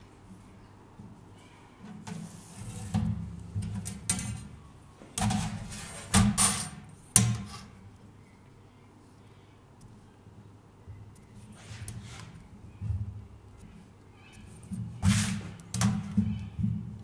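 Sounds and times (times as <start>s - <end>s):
metal sheet scraping on bench: 2.0s - 3.2s, 5.2s - 7.8s, 11.5s - 12.4s, 15.0s - 16.1s.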